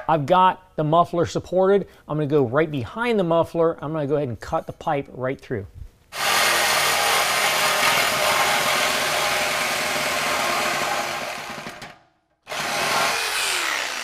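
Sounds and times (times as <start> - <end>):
reciprocating saw cutting metal pipe: 12.5 - 14.0.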